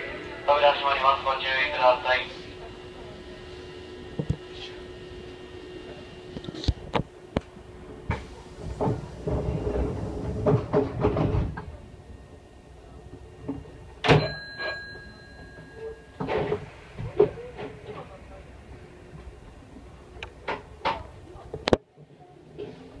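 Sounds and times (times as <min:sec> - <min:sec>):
train clicks and clunks: 0:06.3 - 0:12.4, 0:13.0 - 0:21.8.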